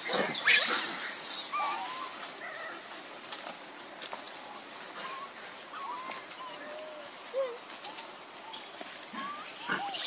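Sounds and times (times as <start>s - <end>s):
macaque squealing: 0.0s - 2.2s, 9.2s - 10.0s
faint macaque chirps: 5.0s - 10.0s.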